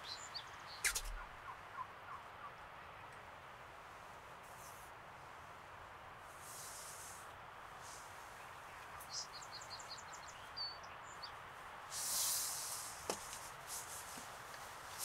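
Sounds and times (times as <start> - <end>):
songbird singing: 0.0 - 3.3, 7.8 - 13.6
rustling hiss: 0.6 - 1.5, 3.6 - 10.3, 11.4 - 15.0.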